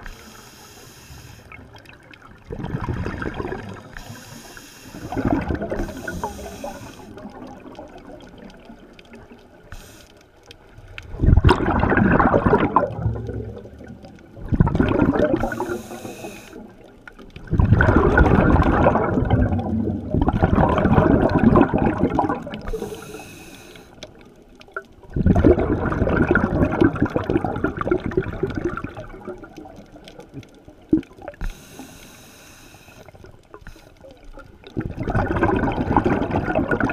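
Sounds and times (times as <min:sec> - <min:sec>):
hissing regulator inhalations: 0:00.0 - 0:01.6, 0:03.8 - 0:07.2, 0:09.7 - 0:10.2, 0:15.4 - 0:16.8, 0:22.6 - 0:24.1, 0:31.4 - 0:34.1
bubbling exhalations underwater: 0:01.9 - 0:04.0, 0:05.0 - 0:08.6, 0:11.0 - 0:16.0, 0:17.4 - 0:23.0, 0:25.0 - 0:31.4, 0:34.5 - 0:36.9.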